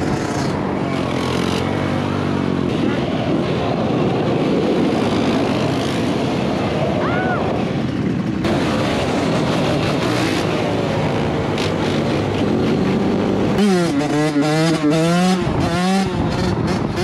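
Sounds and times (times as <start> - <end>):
off-road engines revving: 0.0 - 17.0.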